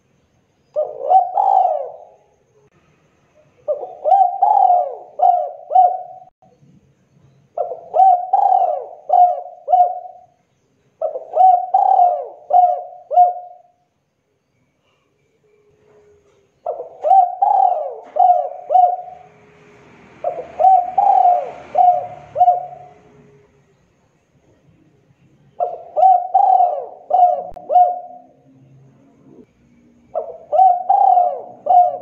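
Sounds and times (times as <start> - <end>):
dove cooing: 0.8 - 2.4, 3.6 - 6.3, 7.6 - 10.4, 11.0 - 13.8, 15.8 - 19.4, 20.2 - 23.5, 25.6 - 28.5, 30.1 - 32.0.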